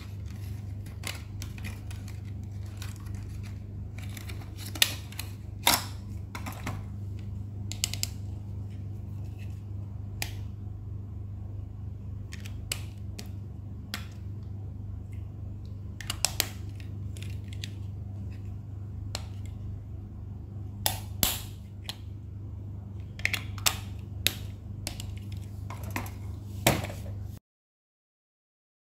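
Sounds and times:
hard plastic clicking and crinkling: 0:00.0 - 0:08.2
low hum: 0:00.0 - 0:27.4.

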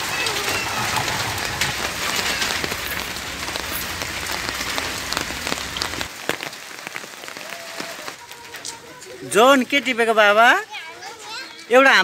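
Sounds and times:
low rumble: 0:00.0 - 0:06.1
hail and rain pattering: 0:00.0 - 0:12.0.

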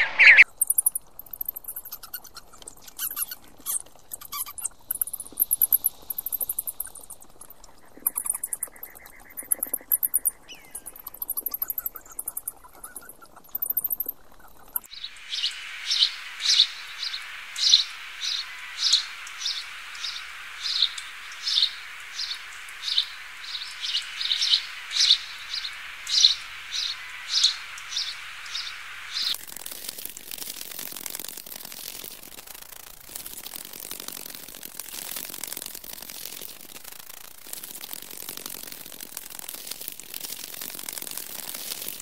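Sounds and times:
bird chirping: 0:00.0 - 0:29.4
bat chittering clicks: 0:00.0 - 0:42.0
steady hiss: 0:02.8 - 0:12.6, 0:14.8 - 0:42.0.

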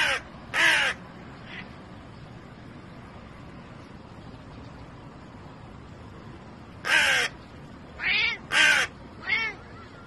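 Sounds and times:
crow cawing: 0:00.0 - 0:01.6, 0:06.8 - 0:07.4, 0:08.0 - 0:10.0
cat meowing: 0:08.0 - 0:08.5, 0:09.2 - 0:10.0.

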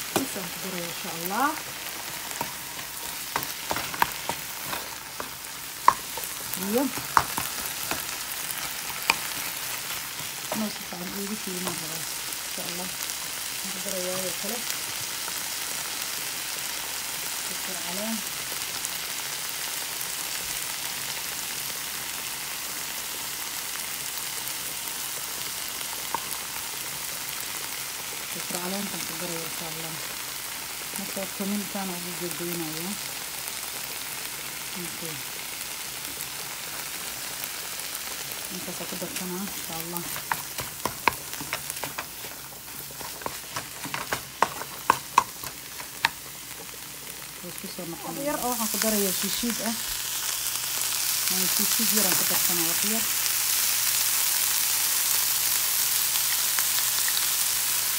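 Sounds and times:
meat and onions sizzling in pan: 0:00.0 - 0:57.9
spatula knocking on pan: 0:05.2 - 0:06.3, 0:07.0 - 0:08.0, 0:40.1 - 0:46.2
wooden spoon stirring: 0:39.4 - 0:46.8.

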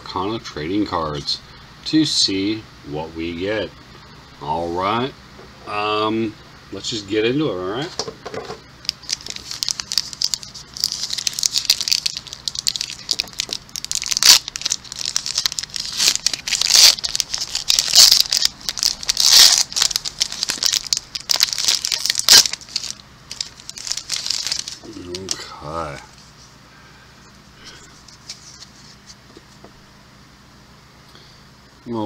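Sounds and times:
foil wrapper crinkling and ripping: 0:08.8 - 0:26.2.

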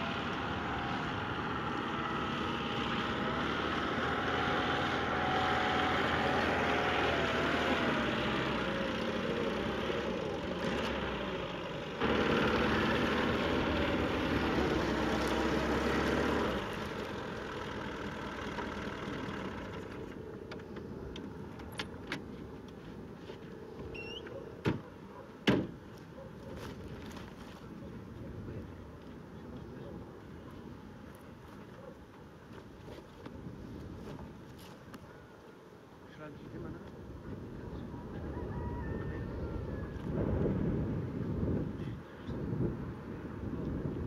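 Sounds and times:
car engine running: 0:00.0 - 0:20.2.

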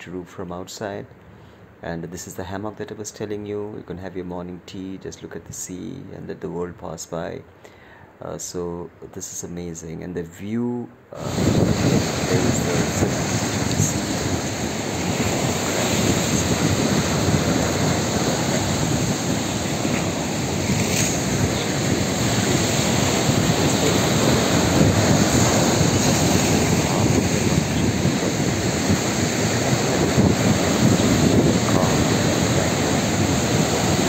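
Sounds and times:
sea surf washing against rocks: 0:11.2 - 0:34.0
wind blowing on microphone: 0:11.2 - 0:34.0.

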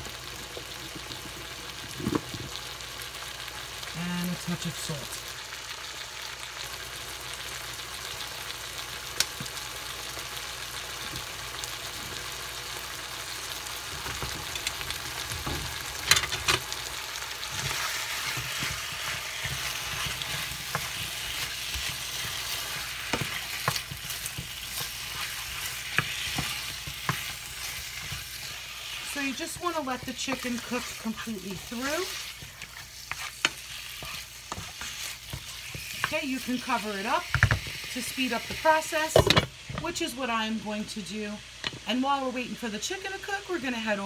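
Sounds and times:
chicken sizzling in frying pan: 0:00.0 - 0:44.0
wooden spoon scraping a pan: 0:17.4 - 0:39.9.

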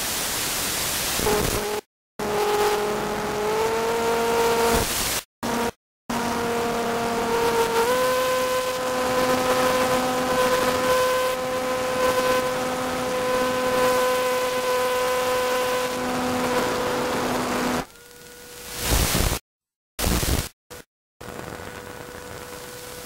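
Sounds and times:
steady hiss: 0:18.0 - 0:19.4.

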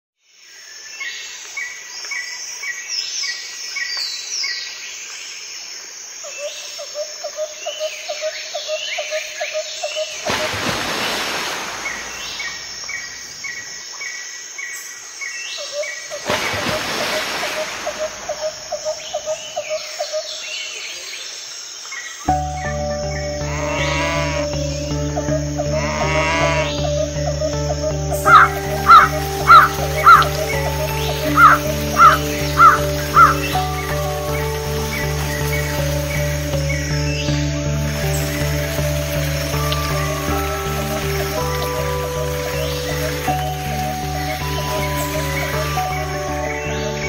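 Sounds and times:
birds chirping: 0:07.7 - 0:14.2, 0:22.1 - 0:47.0
low pulsed bird call: 0:22.3 - 0:47.0
descending whistled bird notes: 0:25.7 - 0:35.8.

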